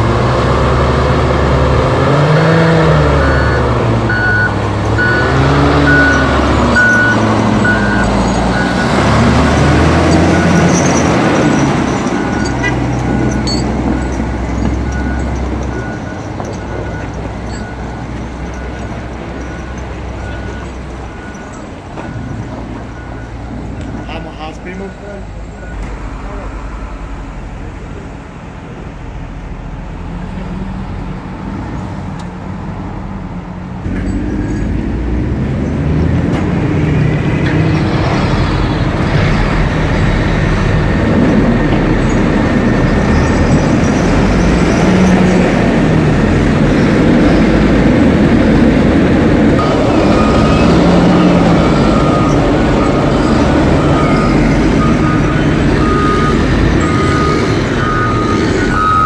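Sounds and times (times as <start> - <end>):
heavy machinery diesel engines: 0.0 - 59.0
high beeping tone: 3.2 - 27.2, 49.6 - 59.0.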